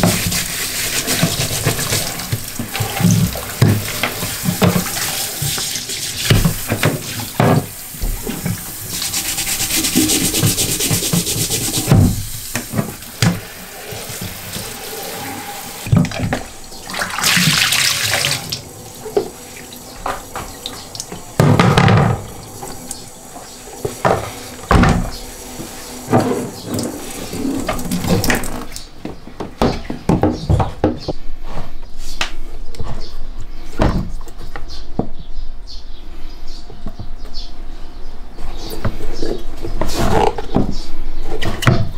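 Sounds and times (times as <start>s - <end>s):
shower head spraying water: 0.0s - 28.4s.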